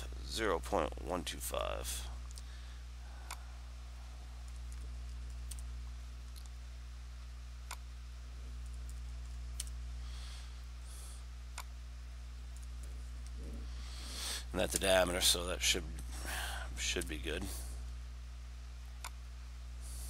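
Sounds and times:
low hum: 0.0 - 20.0
computer mouse clicking: 8.6 - 9.8.

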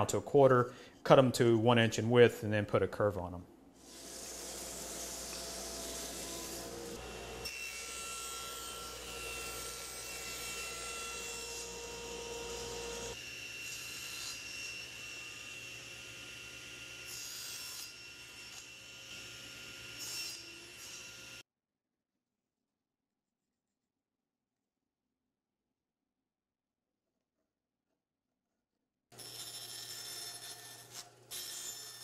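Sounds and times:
thickness planer running: 3.9 - 13.3.

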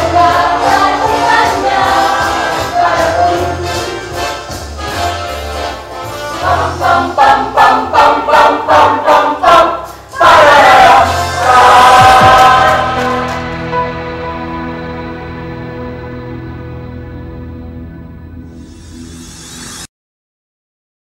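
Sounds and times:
choir singing upbeat song: 0.0 - 14.9.

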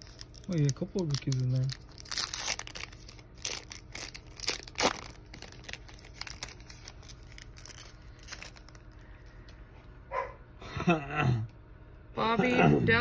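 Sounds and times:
plastic wrapper crinkling and tearing: 0.0 - 9.4.

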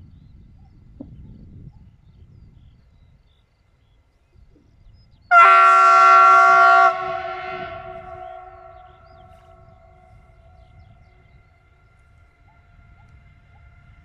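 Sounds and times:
locomotive horn blast: 5.3 - 10.7.

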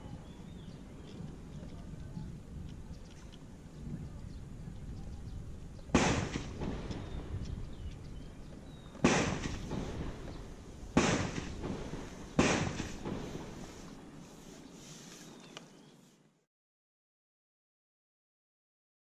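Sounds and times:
gunshots with rolling echo: 5.9 - 7.4, 9.0 - 13.9.

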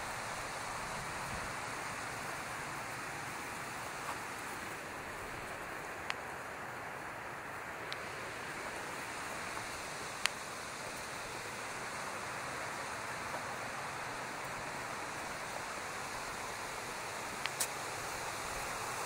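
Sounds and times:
mountain stream rushing: 0.0 - 19.0
sharp click: 17.5 - 17.8.

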